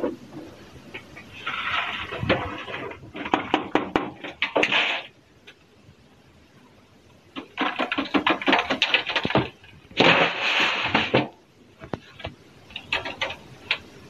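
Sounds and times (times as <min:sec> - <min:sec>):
rushing sifting noise: 0:10.0 - 0:11.2.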